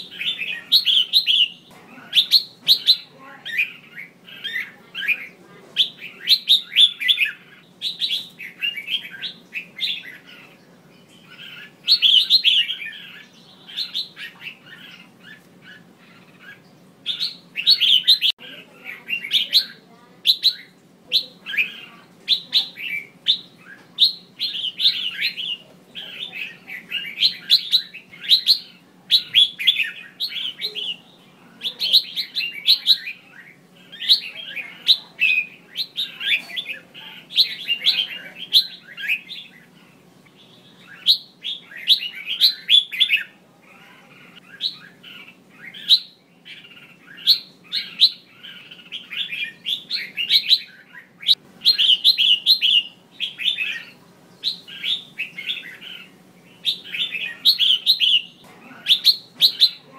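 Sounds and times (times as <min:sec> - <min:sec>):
bulbul chirping: 0:44.4 - 0:59.9.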